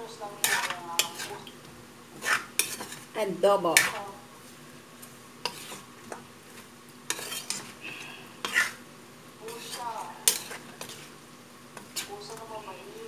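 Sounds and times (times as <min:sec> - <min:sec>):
metal spatula scraping a wok: 0:00.3 - 0:03.1, 0:05.4 - 0:08.8, 0:09.5 - 0:11.2, 0:11.8 - 0:12.7.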